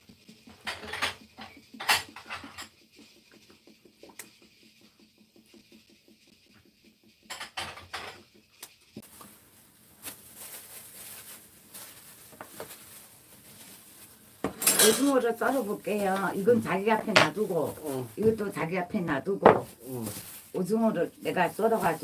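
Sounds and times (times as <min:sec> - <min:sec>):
steady rustling hiss: 0:08.4 - 0:22.0.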